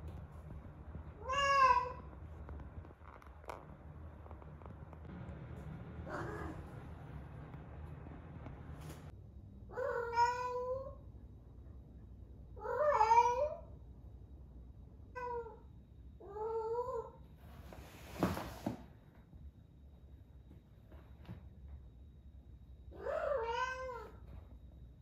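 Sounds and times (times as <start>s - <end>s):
cat meowing: 1.2s - 2.1s, 6.0s - 6.8s, 9.7s - 11.0s, 12.6s - 13.7s, 23.0s - 24.2s.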